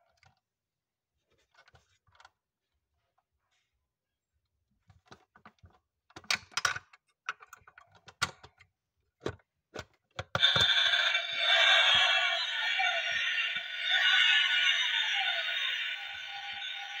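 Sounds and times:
electronic sound effect from speaker: 0:10.4 - 0:17.0.

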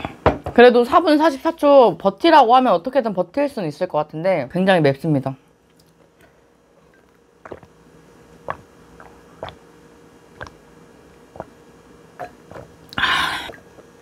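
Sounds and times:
mouth clicks and smacks: 0:07.4 - 0:07.8, 0:08.4 - 0:09.6, 0:10.4 - 0:10.6.

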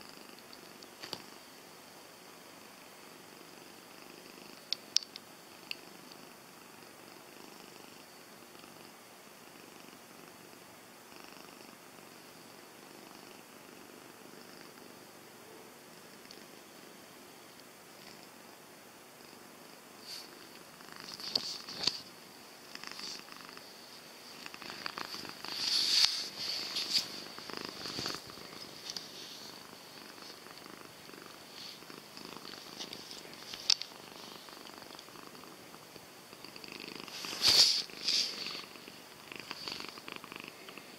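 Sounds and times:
cat purring: 0:02.4 - 0:40.9
scratchy noises on fur: 0:23.9 - 0:30.4, 0:37.0 - 0:38.8.

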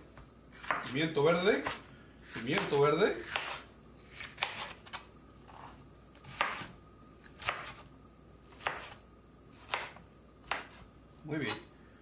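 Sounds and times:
knife chopping on plastic board: 0:00.6 - 0:00.9, 0:01.5 - 0:05.0, 0:06.2 - 0:06.8, 0:07.4 - 0:07.8, 0:08.5 - 0:09.0, 0:09.6 - 0:10.8.

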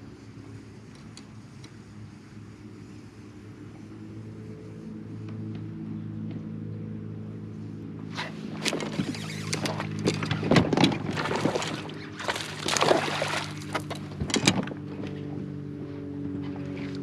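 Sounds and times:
fish splashing at surface: 0:11.1 - 0:13.9.

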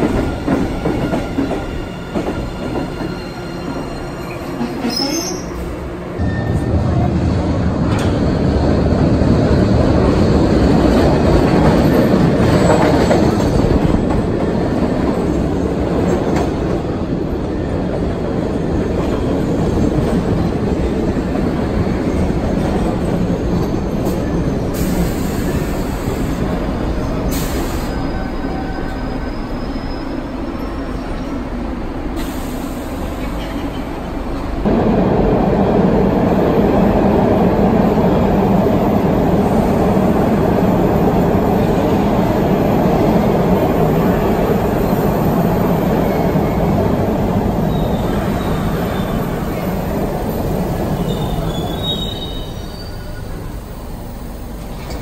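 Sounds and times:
subway train rumbling: 0:00.0 - 0:55.0
faint wheel squeal: 0:27.4 - 0:31.3, 0:51.0 - 0:53.5.

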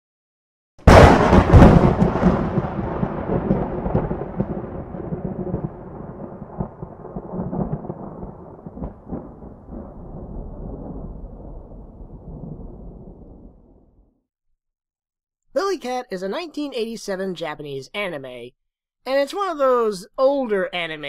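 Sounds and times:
thunderclap with low rumble: 0:00.8 - 0:14.1.

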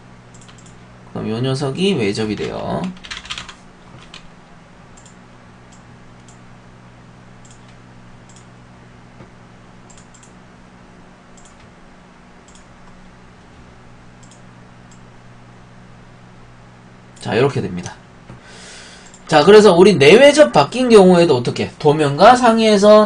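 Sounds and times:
low electrical hum: 0:00.0 - 0:23.0
computer keyboard key clicks: 0:00.3 - 0:00.8.

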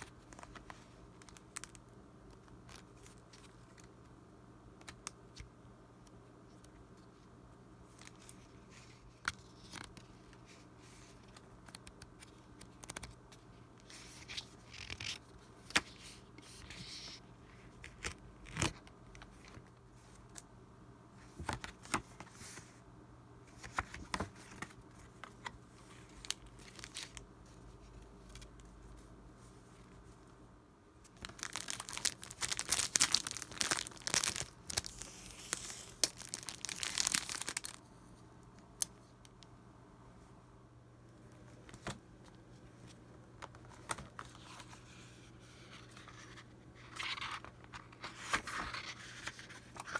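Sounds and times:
paper cards flipped and rustling: 0:07.9 - 0:13.2, 0:13.8 - 0:17.2, 0:23.6 - 0:28.7, 0:31.1 - 0:37.8, 0:42.8 - 0:49.9
cellophane crinkling and tearing: 0:26.1 - 0:27.2, 0:31.1 - 0:37.8.

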